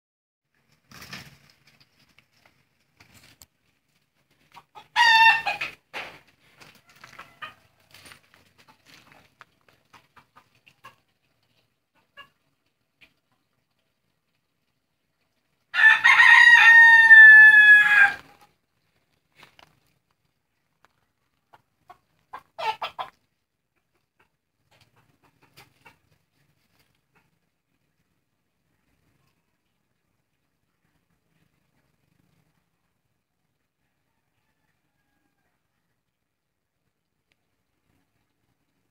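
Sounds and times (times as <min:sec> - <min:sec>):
chicken clucking: 0:04.2 - 0:18.9, 0:19.7 - 0:36.2
rooster crowing: 0:04.9 - 0:05.7, 0:15.7 - 0:18.3, 0:33.9 - 0:35.8.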